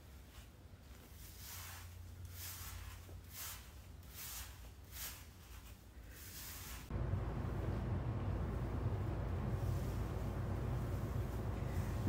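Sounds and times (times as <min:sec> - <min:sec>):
hairbrush swishing through hair: 0:00.2 - 0:07.0
low steady hum: 0:06.9 - 0:12.0.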